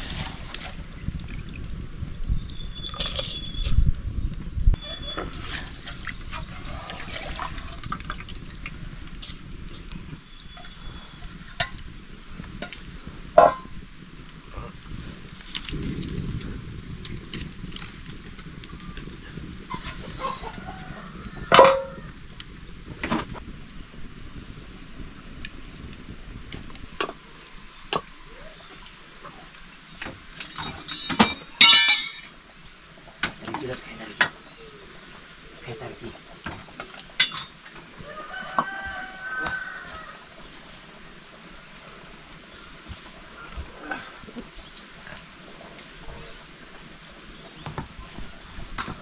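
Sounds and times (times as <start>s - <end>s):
metal pots and utensils clinking: 21.5s - 22.0s, 30.4s - 32.4s, 37.2s - 37.6s
ringing metal clatter: 30.4s - 32.3s.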